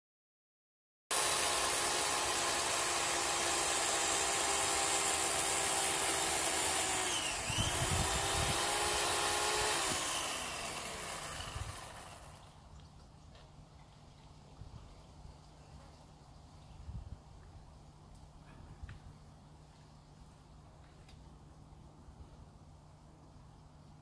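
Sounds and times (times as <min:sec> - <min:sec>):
chainsaw engine at high revs: 0:01.1 - 0:12.6.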